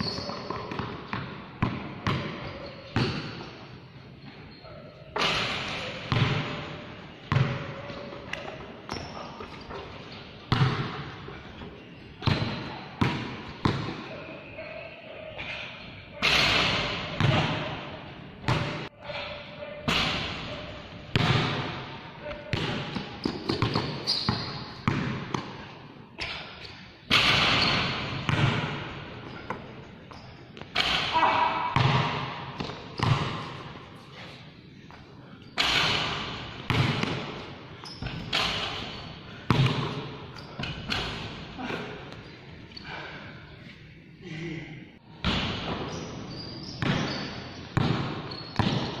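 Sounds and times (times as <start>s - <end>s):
basketball bouncing on court floor: 0.0s - 3.5s, 5.2s - 6.7s, 7.3s - 9.8s, 10.4s - 11.1s, 12.2s - 14.0s, 21.1s - 21.8s, 22.4s - 25.6s, 27.1s - 33.7s, 35.6s - 41.4s, 46.8s - 49.0s
basketball bouncing on concrete: 6.1s - 6.6s, 7.3s - 7.7s, 10.5s - 10.9s, 22.5s - 25.5s, 27.4s - 28.9s, 31.7s - 33.6s, 39.5s - 40.0s, 47.8s - 48.9s.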